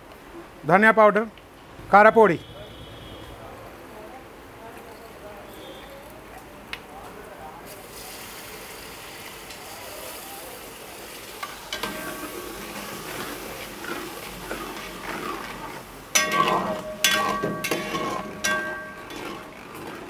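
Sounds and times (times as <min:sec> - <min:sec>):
spices sizzling in a pot: 0:07.6 - 0:20.0
metal spatula scraping a pot: 0:11.7 - 0:20.0.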